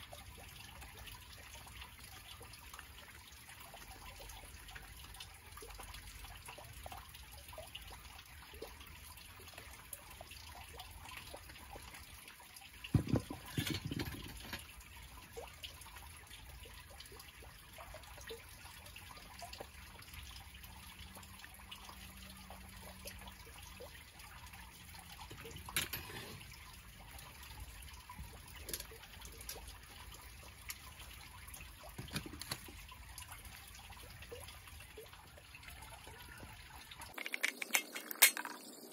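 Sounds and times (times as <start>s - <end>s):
metal tools knocking: 12.9s - 14.7s, 25.4s - 26.4s, 37.1s - 38.7s.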